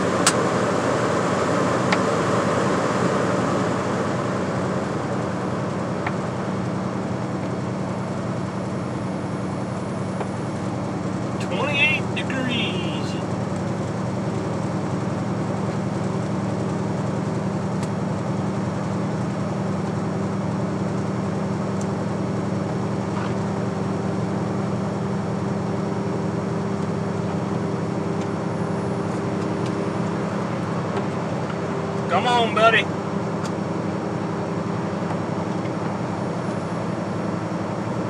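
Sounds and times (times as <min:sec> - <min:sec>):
truck engine drone: 0:00.0 - 0:38.0.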